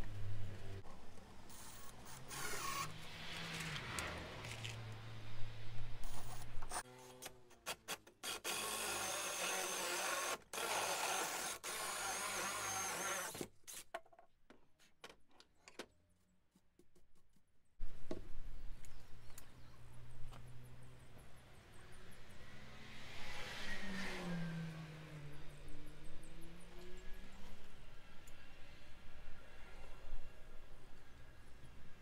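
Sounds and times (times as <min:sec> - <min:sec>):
cordless drill whine: 0:01.5 - 0:02.9, 0:08.5 - 0:13.4.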